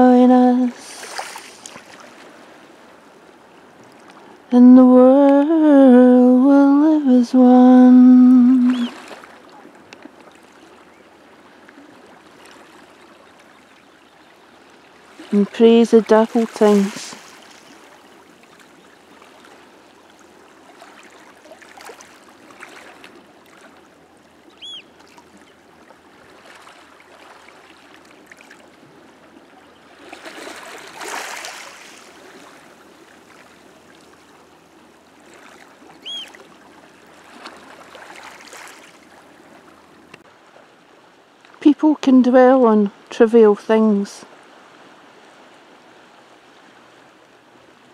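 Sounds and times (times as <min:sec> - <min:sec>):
sea lapping among rocks: 0:00.0 - 0:03.0, 0:08.1 - 0:13.6, 0:15.0 - 0:29.2, 0:29.9 - 0:40.2
high chirps: 0:36.0 - 0:36.3.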